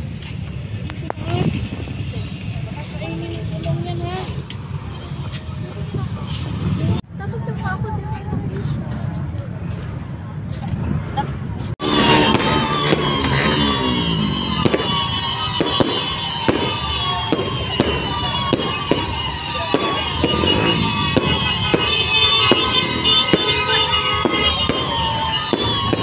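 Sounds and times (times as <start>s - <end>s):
fireworks bangs: 11.8s - 26.0s
whistling rockets: 11.8s - 26.0s.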